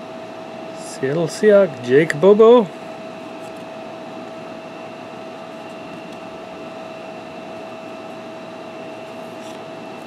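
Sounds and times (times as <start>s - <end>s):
fan hum and hiss: 0.0s - 10.0s
mid-pitched whine: 0.0s - 10.0s.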